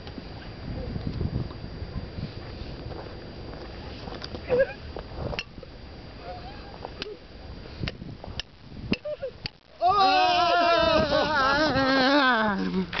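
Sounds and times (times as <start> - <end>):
men yelling together: 9.8 - 12.6.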